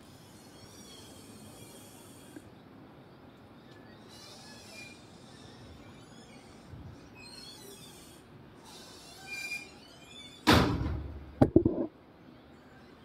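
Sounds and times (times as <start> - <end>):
quick knocks: 11.4 - 11.9.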